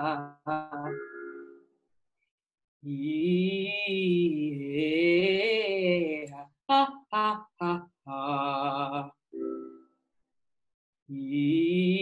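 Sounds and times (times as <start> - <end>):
soprano singing vocal exercise: 0.0 - 1.6, 2.8 - 9.9, 11.1 - 12.0.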